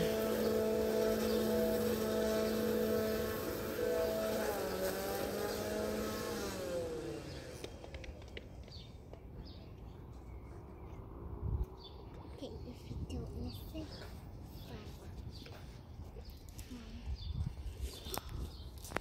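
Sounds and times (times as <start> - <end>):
vehicle engine hum: 0.0 - 14.4.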